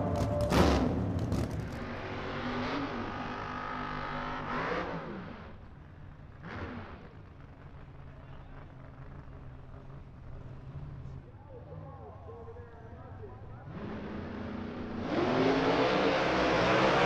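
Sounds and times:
car engine idling and revving: 0.0 - 17.0.

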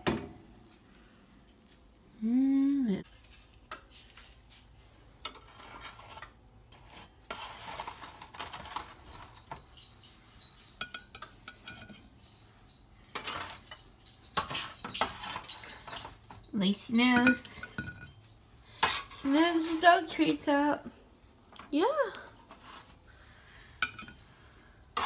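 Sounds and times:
metal spatula scraping baking sheet: 3.1 - 9.3, 18.8 - 20.5, 22.4 - 23.0
metal clinking on metal: 8.3 - 20.4, 23.7 - 25.0.

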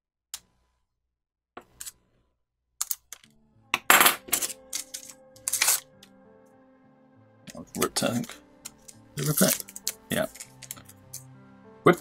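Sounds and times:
metal tools clinking on plastic mat: 2.8 - 5.9, 8.2 - 11.0
soft background music: 2.9 - 12.0
paper rustling: 4.4 - 5.9, 8.2 - 11.0.

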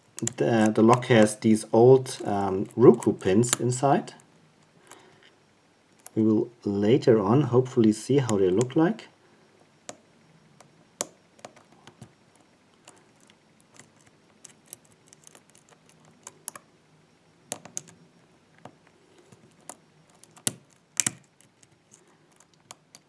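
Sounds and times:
lock pick clicking in cylinder: 19.3 - 23.0.

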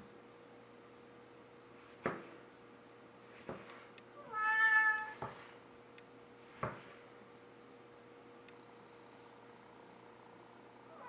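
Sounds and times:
cat meowing: 4.2 - 5.2.

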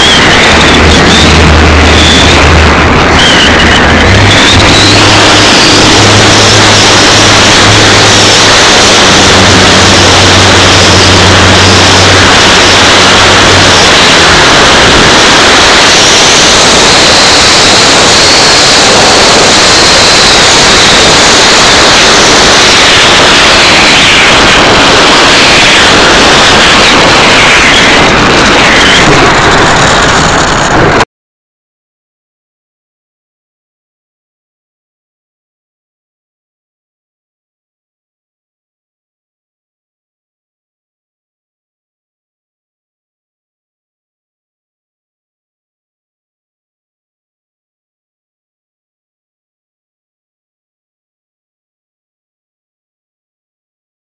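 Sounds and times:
electric motor and propeller whine: 0.0 - 31.0
wind rush over microphone: 0.0 - 31.0.

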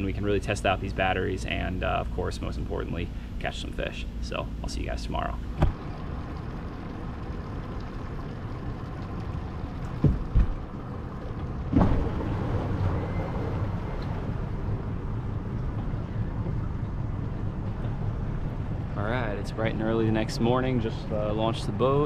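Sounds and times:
moving vehicle rumble: 5.2 - 22.0.

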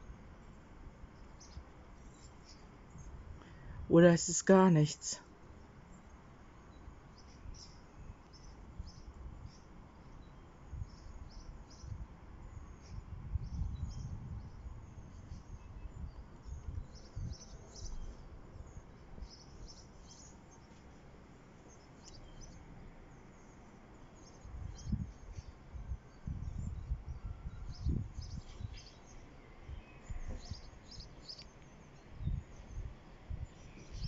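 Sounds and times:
faint outdoor background noise: 0.0 - 34.0
small birds chirping: 0.0 - 34.0
low rumbles on microphone: 12.8 - 17.4, 32.2 - 34.0.

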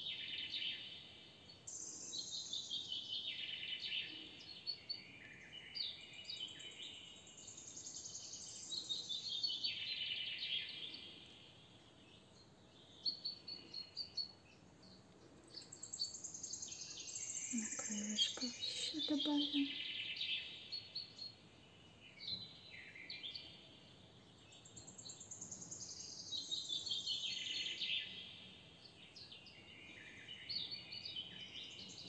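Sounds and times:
songbirds trilling: 14.9 - 20.4.

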